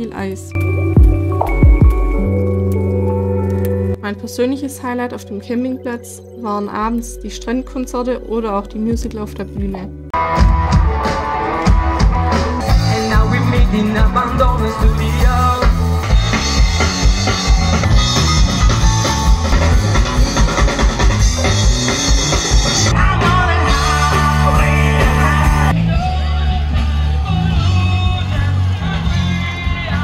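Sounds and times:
drum kit beat: 0.8s - 2.5s, 8.9s - 28.5s
guitars: 8.4s - 30.0s
person singing: 12.6s - 16.0s, 22.9s - 30.0s.

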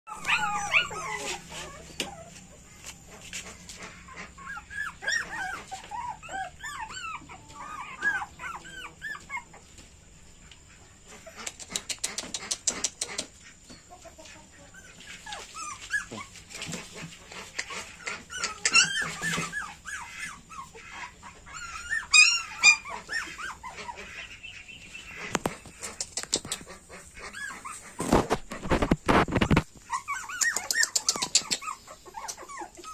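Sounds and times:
puppies whining: 0.1s - 3.2s, 4.0s - 9.8s, 14.7s - 16.9s, 17.5s - 24.3s, 25.6s - 32.9s
rustling: 14.2s - 20.8s, 25.1s - 32.9s.

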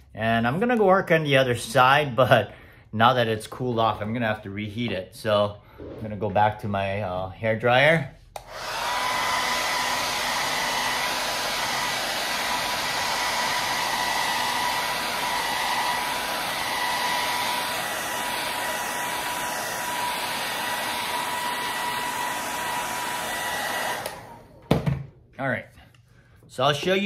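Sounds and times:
hair dryer motor whine: 8.4s - 24.7s
hair dryer blowing air: 8.4s - 24.8s.

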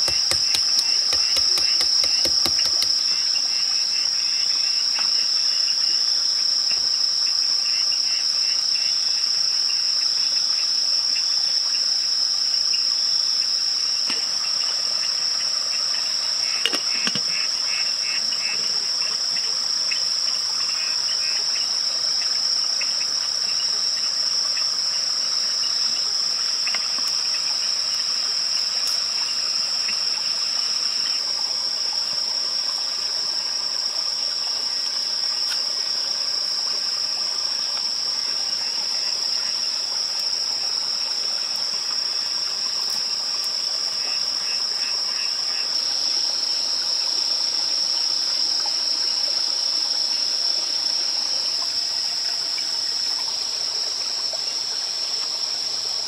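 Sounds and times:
short knock: 0.0s - 2.9s
crickets and insects droning: 0.0s - 56.0s.

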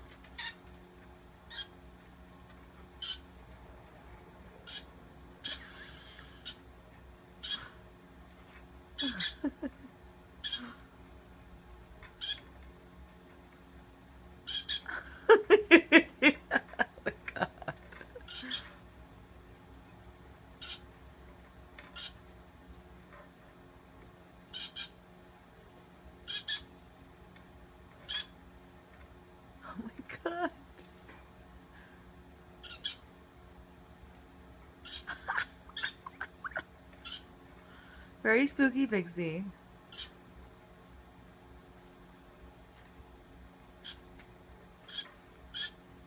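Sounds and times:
parrot chirping: 0.4s - 0.6s, 1.5s - 1.8s, 3.0s - 3.3s, 4.6s - 6.6s, 7.4s - 7.7s, 9.0s - 9.5s, 10.4s - 10.7s, 12.2s - 12.5s, 14.5s - 14.9s, 18.2s - 18.7s, 20.6s - 20.9s, 21.9s - 22.2s, 24.5s - 25.0s, 26.3s - 26.7s, 28.0s - 28.4s, 32.6s - 33.0s, 34.8s - 37.3s, 39.9s - 40.2s, 43.8s - 44.0s, 44.9s - 45.8s
parrot squawking calls: 0.4s - 0.6s, 1.5s - 1.8s, 3.0s - 3.3s, 4.6s - 6.6s, 7.4s - 7.8s, 9.0s - 9.5s, 10.4s - 10.8s, 12.2s - 12.5s, 14.5s - 14.9s, 18.2s - 18.8s, 20.6s - 20.9s, 21.9s - 22.2s, 24.5s - 25.0s, 26.3s - 26.7s, 28.0s - 28.4s, 32.6s - 33.0s, 34.8s - 37.3s, 39.9s - 40.2s, 43.8s - 44.1s, 44.9s - 45.8s.

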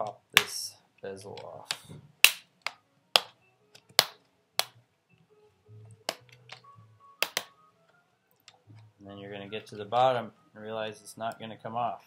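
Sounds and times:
plastic clips snapping: 5.9s - 7.6s.

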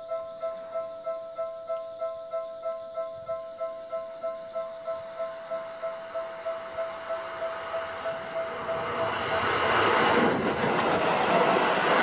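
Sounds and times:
electric train running: 5.4s - 12.0s.

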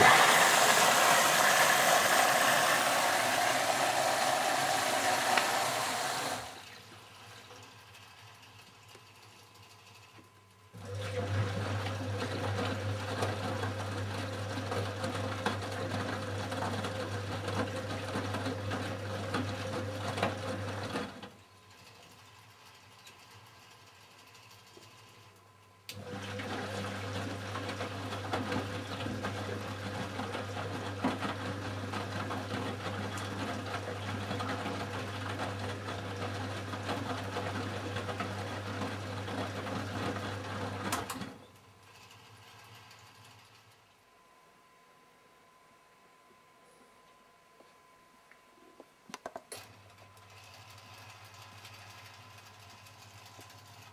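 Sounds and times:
washing machine drum motor hum: 0.0s - 7.8s, 10.8s - 21.2s, 26.0s - 41.4s.

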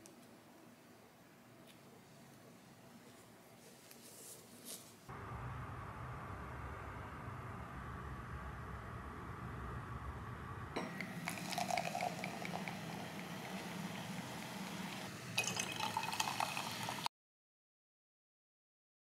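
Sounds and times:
sparkling drink pouring and fizzing: 10.8s - 17.1s.

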